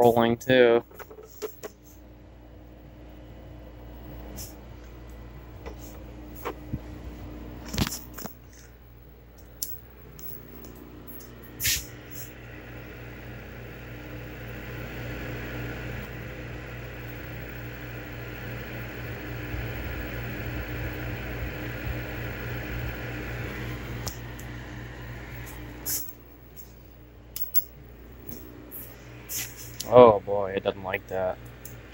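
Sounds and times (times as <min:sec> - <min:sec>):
steady low hum: 0:00.0 - 0:31.9.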